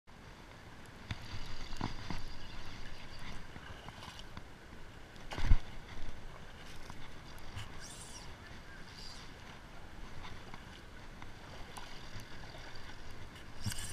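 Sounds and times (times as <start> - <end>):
water splashing: 5.2 - 13.9.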